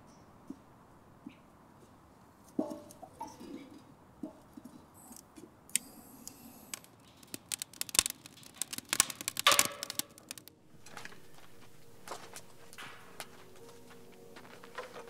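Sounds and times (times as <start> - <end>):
kindling crackling and popping: 5.7 - 15.0
wooden sticks clicking: 5.8 - 11.3.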